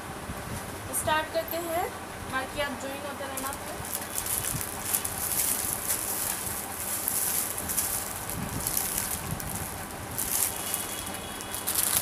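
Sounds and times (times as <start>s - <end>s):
clothes rustling and crackling: 3.2s - 12.0s.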